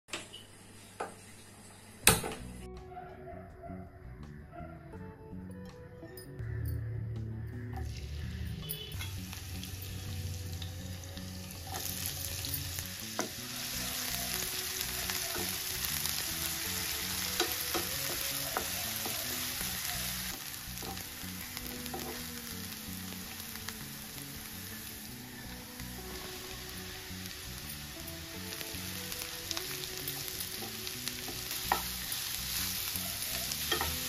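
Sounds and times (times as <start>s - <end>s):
garlic and onion sizzling in oil: 7.5s - 34.0s
spatula tapping pan: 17.4s - 19.5s, 30.0s - 32.2s, 33.5s - 34.0s.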